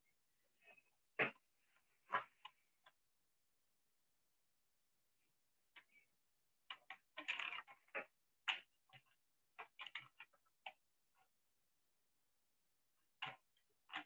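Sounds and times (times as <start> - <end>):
faint irregular clicks and taps: 0.6 - 3.2, 5.7 - 11.4, 12.9 - 14.0.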